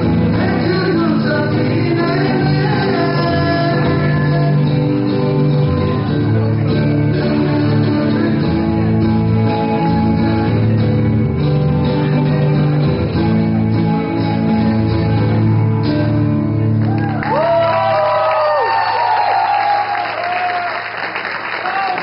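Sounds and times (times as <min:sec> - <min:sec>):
band playing held guitar chords: 0:00.0 - 0:18.1.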